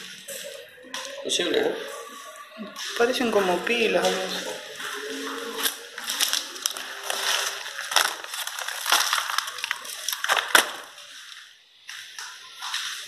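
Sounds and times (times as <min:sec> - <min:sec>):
plaster and glass debris crunching: 0:05.6 - 0:11.1
sharp cracks: 0:05.7 - 0:11.0.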